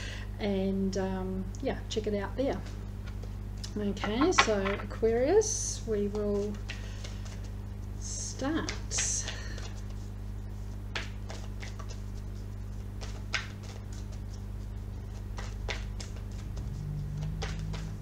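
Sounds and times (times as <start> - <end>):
steady low hum: 0.0 - 18.0
cards shuffled by hand: 6.2 - 8.0, 8.6 - 18.0.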